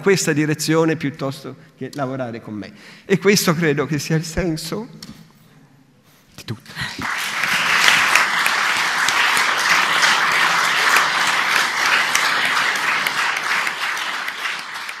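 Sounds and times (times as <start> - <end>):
audience applauding: 6.8 - 15.0.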